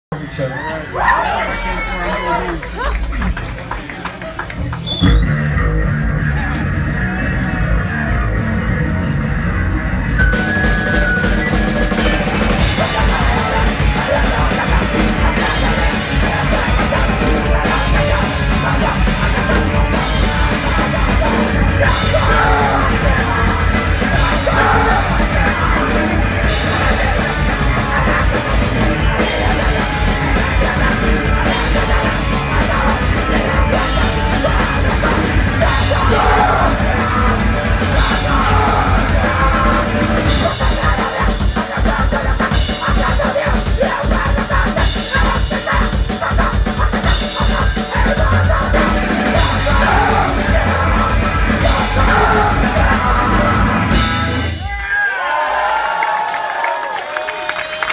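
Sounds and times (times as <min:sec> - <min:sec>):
distorted guitar and bass: 0:04.4 - 0:54.8
pounding drum kit: 0:04.6 - 0:54.9
person shouting vocals: 0:22.1 - 0:23.0, 0:35.8 - 0:36.9, 0:38.1 - 0:39.4.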